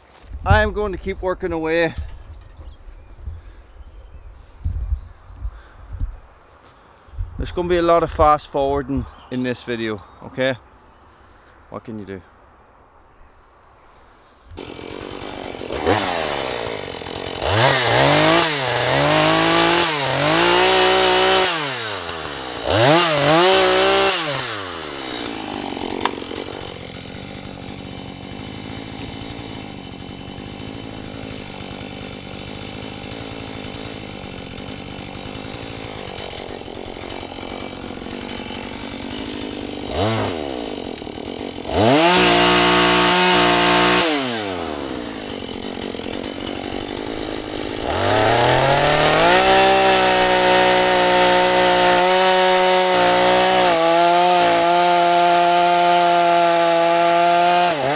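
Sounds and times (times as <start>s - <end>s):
chainsaw revving and idling: 14.5s - 57.9s.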